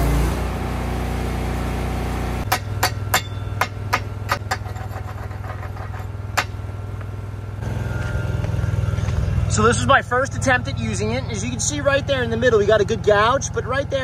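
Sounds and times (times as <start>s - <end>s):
chipping hammer striking steel: 2.4s - 4.8s.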